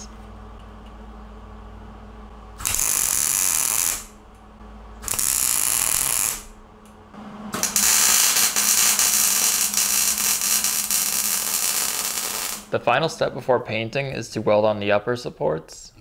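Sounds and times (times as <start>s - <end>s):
welder arc crackling buzz: 2.0s - 12.8s.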